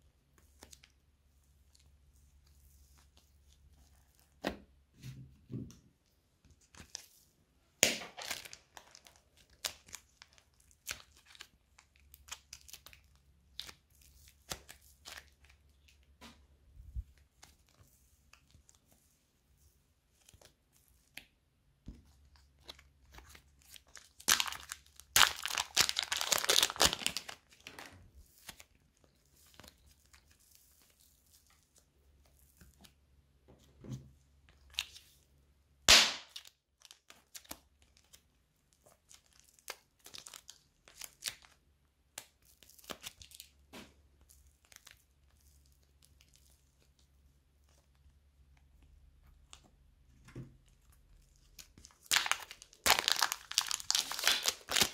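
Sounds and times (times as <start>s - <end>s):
slime squeezed by hand crackling: 23.2s - 27.5s, 51.6s - 54.9s
sharp crack: 35.9s - 36.4s.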